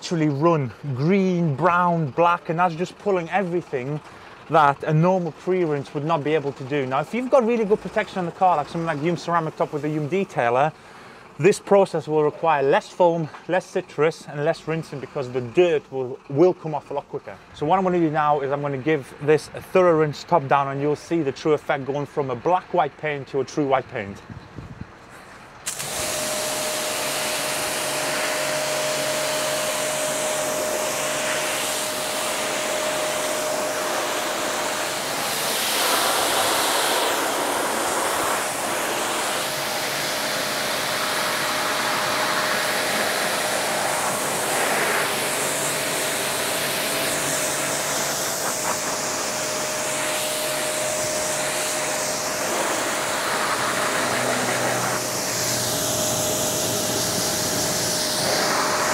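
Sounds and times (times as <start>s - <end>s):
pressure washer whine: 0.0s - 19.5s, 25.4s - 58.9s
pressure washer spray hiss: 25.7s - 58.9s.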